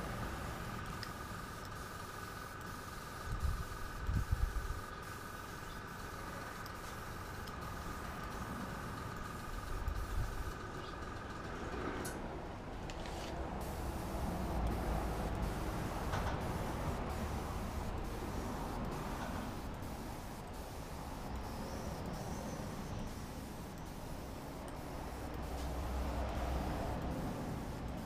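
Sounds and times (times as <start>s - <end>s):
airbrush hissing: 13.6s - 28.0s.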